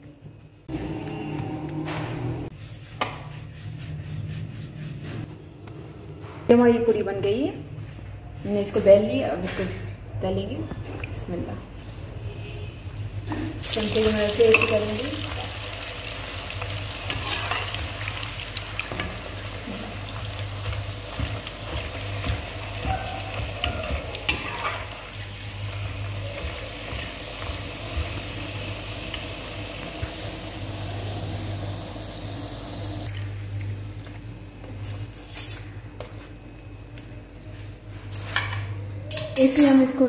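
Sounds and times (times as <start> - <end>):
dough sizzling in hot oil: 13.6 - 33.1
metal spoon scraping a pan: 14.4 - 15.0, 17.1 - 17.9, 24.3 - 25.0.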